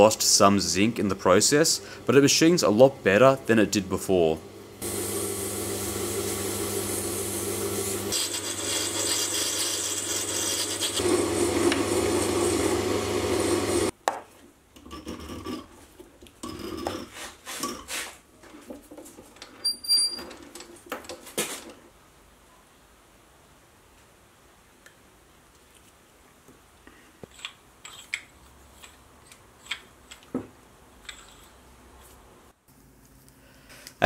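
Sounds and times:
metal lathe humming: 4.4 - 13.9
file rasping on spinning brass: 8.1 - 12.8.

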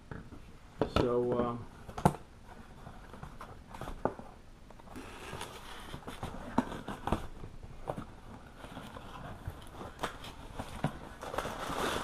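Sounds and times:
cardboard flaps rustling: 5.0 - 12.0.

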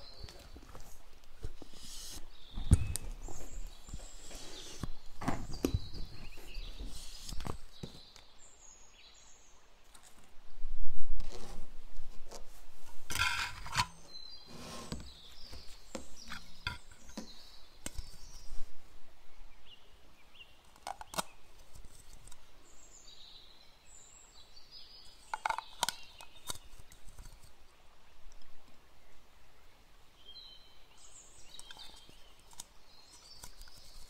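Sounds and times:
plastic cups clicking and tapping: 25.3 - 27.4.

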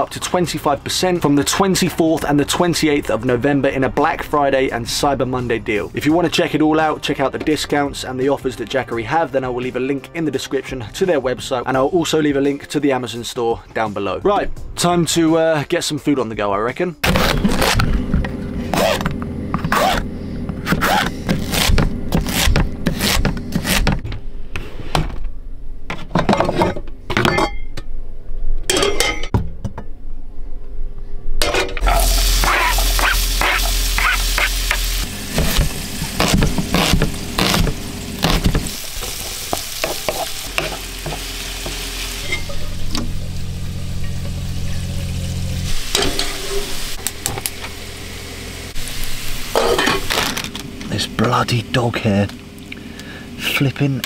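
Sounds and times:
food sizzling in frying pan: 31.8 - 50.1
electric water pump humming: 31.8 - 53.6
knife chopping on plastic board: 35.4 - 38.7.

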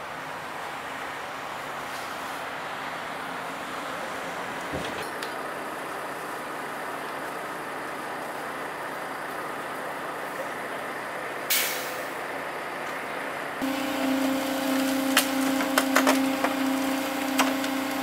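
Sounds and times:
heavy truck engine running: 0.1 - 18.0
air brake hiss: 11.5 - 12.2.

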